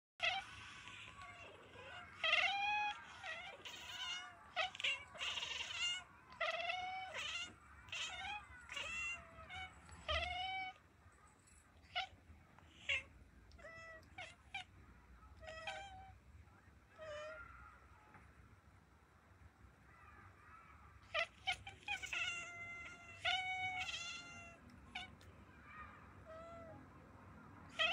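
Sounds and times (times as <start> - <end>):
kittens meowing: 0.2 - 10.8, 11.8 - 16.2, 21.0 - 26.8, 27.7 - 27.9.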